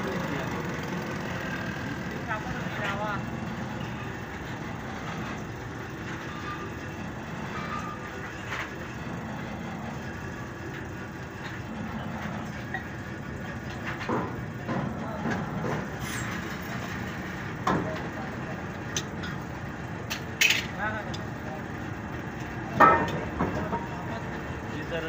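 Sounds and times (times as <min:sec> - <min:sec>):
hydraulic press humming: 0:00.0 - 0:25.0.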